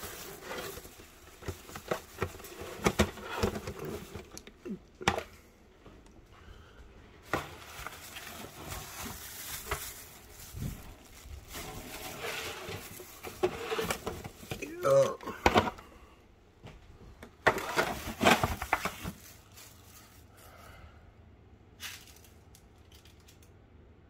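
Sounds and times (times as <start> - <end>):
foil baking pan handled: 0.0 - 5.3, 7.2 - 14.8, 17.4 - 19.6.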